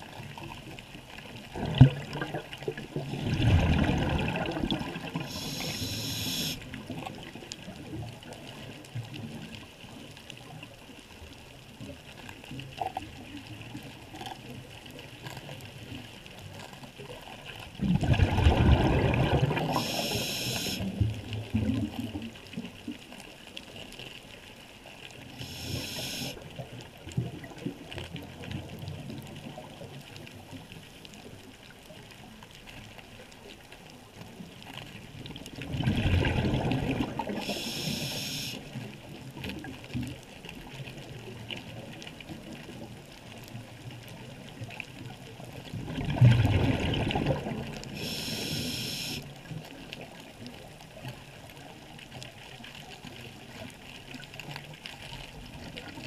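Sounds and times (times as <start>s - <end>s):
underwater wash: 0.0s - 56.0s
bubbling exhales underwater: 1.5s - 6.6s, 17.8s - 22.0s, 35.6s - 38.6s, 45.8s - 49.2s
hissing regulator inhales: 5.2s - 6.6s, 19.7s - 20.9s, 25.4s - 26.4s, 37.4s - 38.6s, 48.0s - 49.2s.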